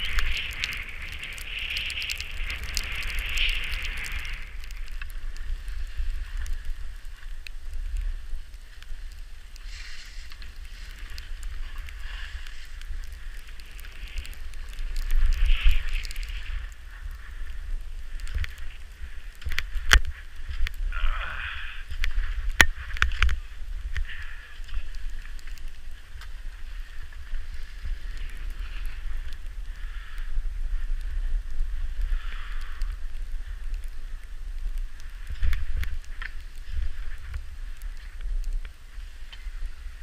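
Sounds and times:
skis scraping over snow: 0.0s - 40.0s
wind rumble on microphone: 0.0s - 40.0s.

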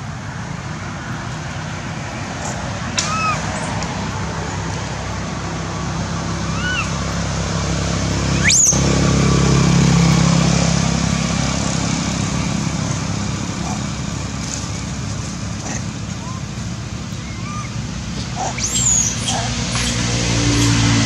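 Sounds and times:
vehicle engine humming: 0.0s - 21.0s
shrill upward sweeping call: 6.4s - 7.0s, 8.2s - 9.1s, 18.5s - 21.0s.

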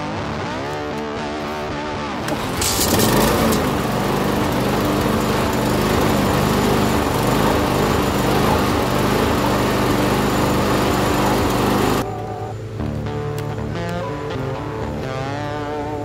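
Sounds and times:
lawn mower engine running: 2.2s - 12.3s.

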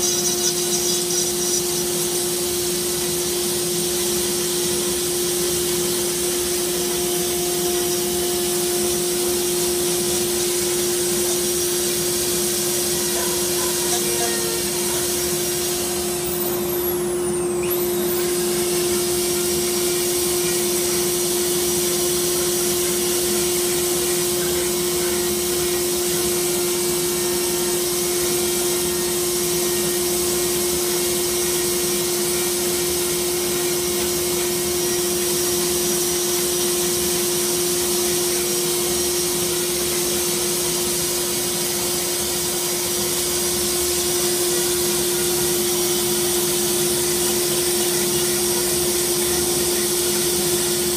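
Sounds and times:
rotary tool grinding wood: 0.0s - 2.3s
dust collection vacuum running: 0.0s - 50.9s.

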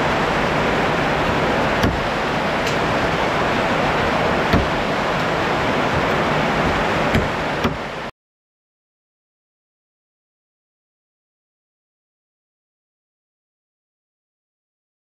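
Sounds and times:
water flowing: 0.0s - 8.1s.

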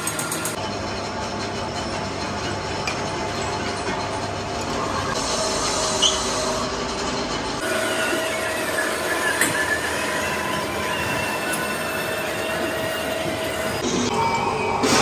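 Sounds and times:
machinery whine: 0.0s - 15.0s
workshop machine noise: 0.0s - 15.0s.

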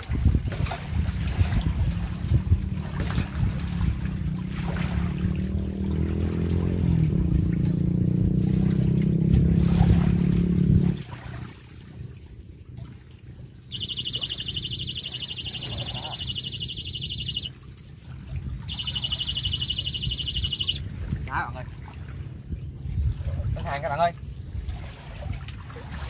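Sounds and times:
fishing reel gears humming: 13.7s - 17.5s, 18.7s - 20.8s
high pulsing buzz: 13.7s - 17.5s, 18.7s - 20.8s.

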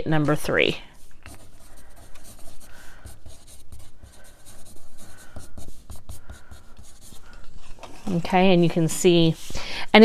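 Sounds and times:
pencil scratching on paper: 1.0s - 8.3s.

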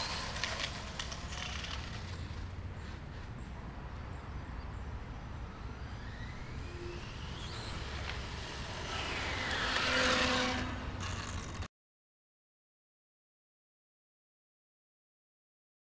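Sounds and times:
rush of motor and tyres: 0.0s - 11.7s
electric motor whine: 5.4s - 11.7s.

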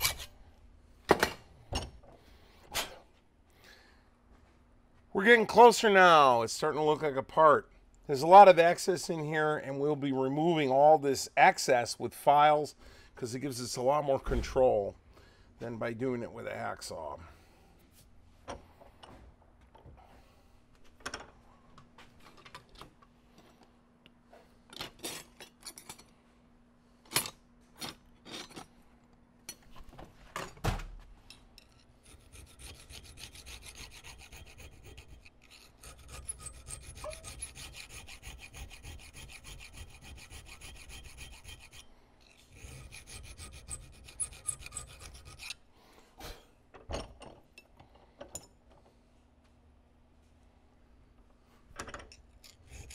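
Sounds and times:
file strokes on metal: 31.9s - 45.6s, 52.4s - 52.9s.

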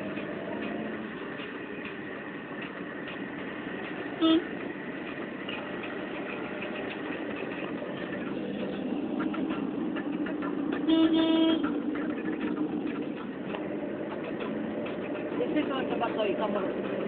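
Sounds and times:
engine and road noise: 0.0s - 17.0s
car horn toot: 4.2s - 4.5s, 10.8s - 11.7s.

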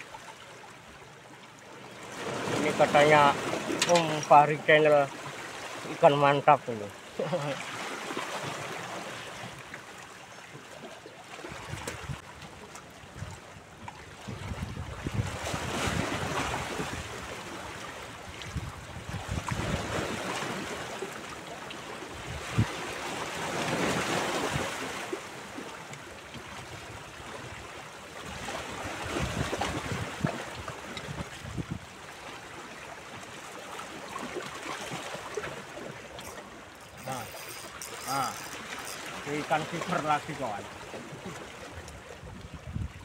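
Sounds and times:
waves splashing against rocks: 2.0s - 10.0s, 14.4s - 27.6s, 28.2s - 42.6s
wind rumbling on microphone: 11.6s - 12.4s, 13.1s - 17.2s, 18.3s - 20.1s, 22.2s - 22.8s, 28.7s - 31.9s, 41.8s - 43.0s.

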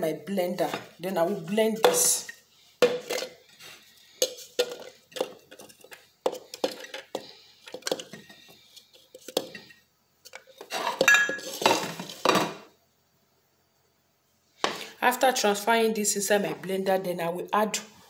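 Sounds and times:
cutlery clinking on ceramic plate: 10.9s - 11.9s.

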